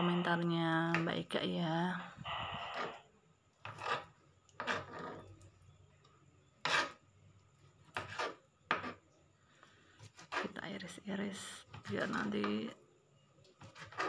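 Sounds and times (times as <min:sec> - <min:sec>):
knife cutting on plastic board: 0:03.6 - 0:05.4, 0:06.6 - 0:07.0, 0:07.9 - 0:09.0, 0:10.0 - 0:10.6, 0:13.6 - 0:14.0.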